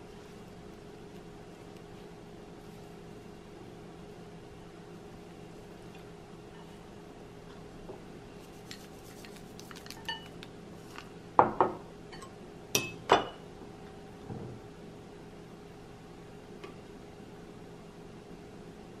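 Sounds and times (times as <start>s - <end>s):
glass and ceramic tableware clinking: 9.9s - 10.4s, 11.5s - 13.4s.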